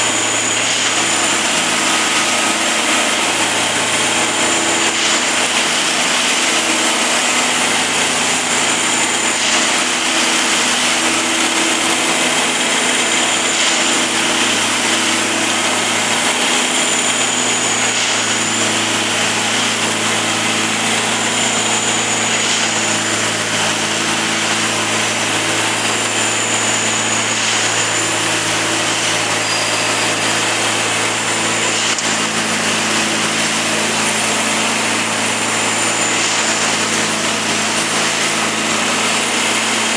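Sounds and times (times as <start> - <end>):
high machine whine: 0.0 - 39.9
machine engine and hydraulics: 0.0 - 39.9.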